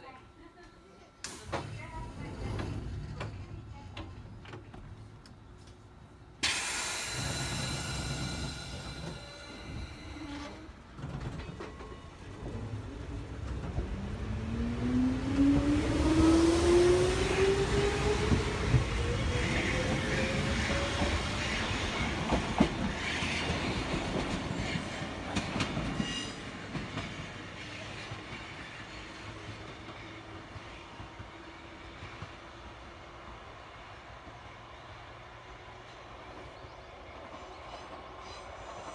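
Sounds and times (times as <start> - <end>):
train rumble: 1.3 - 32.8
electric train whine: 6.4 - 27.4.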